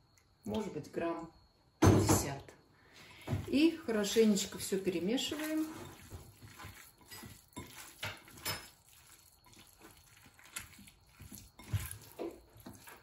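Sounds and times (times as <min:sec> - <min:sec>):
hands squishing wet minced meat: 0:03.5 - 0:13.0.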